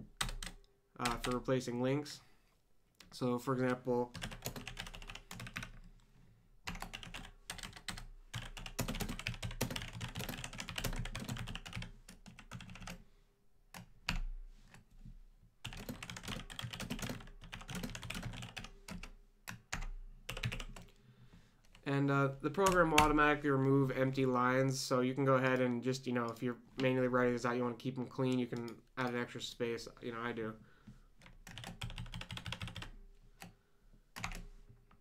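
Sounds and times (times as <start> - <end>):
computer keyboard typing: 0.1 - 1.5, 3.0 - 5.9, 6.7 - 13.0, 15.6 - 20.9, 31.2 - 33.5, 34.2 - 34.5.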